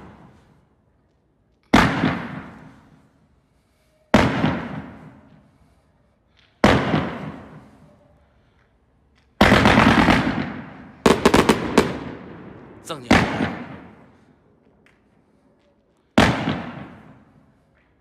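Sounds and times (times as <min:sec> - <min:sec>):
firework bangs: 0:12.9 - 0:14.0.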